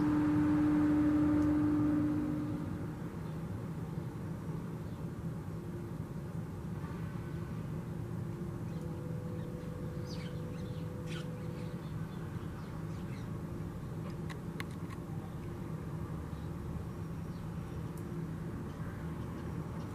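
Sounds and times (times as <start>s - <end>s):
faint hum: 0.0s - 19.9s
low outdoor rumble: 0.0s - 19.9s
high bird calls: 8.7s - 13.3s.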